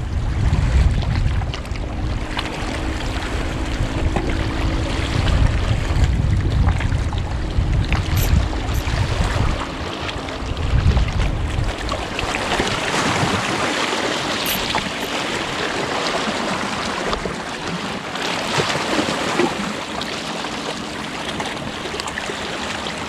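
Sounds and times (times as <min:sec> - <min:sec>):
wind buffeting microphone: 0:00.0 - 0:17.9
waves lapping against rocks: 0:00.0 - 0:23.0.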